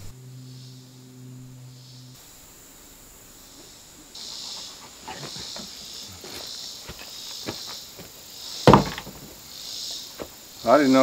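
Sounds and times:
insects buzzing: 0.0s - 11.0s
footsteps on dirt: 4.4s - 10.5s.

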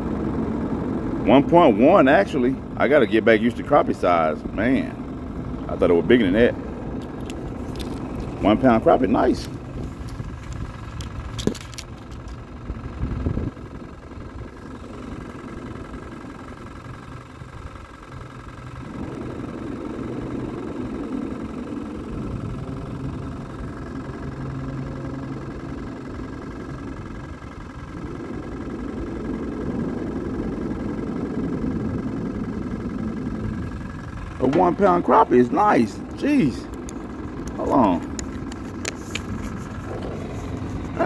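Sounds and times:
road traffic rumbling overhead: 0.0s - 41.0s.

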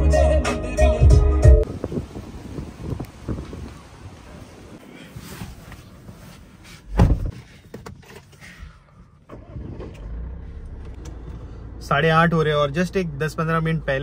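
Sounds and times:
car door shutting: 6.8s - 8.3s
diesel engine starting and idling: 8.2s - 14.0s.

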